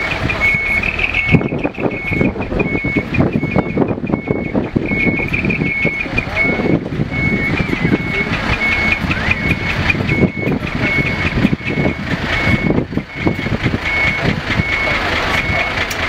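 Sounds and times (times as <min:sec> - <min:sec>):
diesel truck engine rumbling: 0:00.0 - 0:16.0
truck warning beeper: 0:00.0 - 0:16.0.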